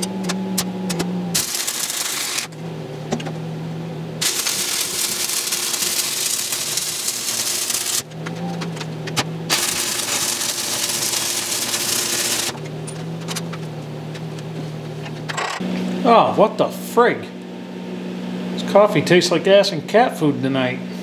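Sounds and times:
welding arc crackling and sizzling: 1.4 - 2.6, 4.2 - 13.4.

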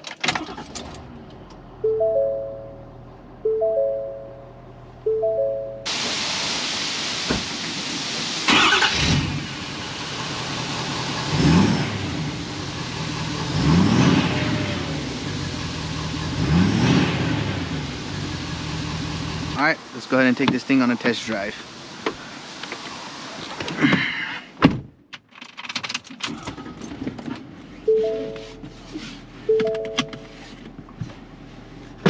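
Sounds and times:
diesel engine idling and revving: 0.0 - 23.4
dashboard chimes: 1.8 - 5.9, 27.9 - 28.6, 29.5 - 30.2.

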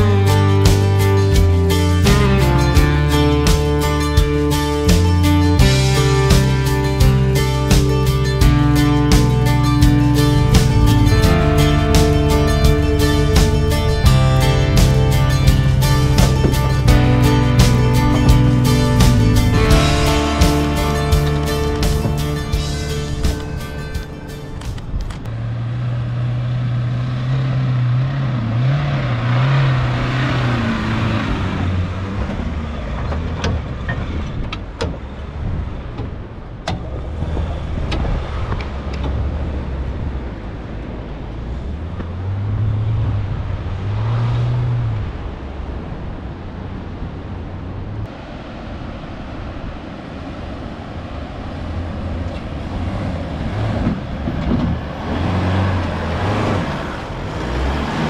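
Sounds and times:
off-road engines revving: 0.0 - 48.3, 50.0 - 58.0.

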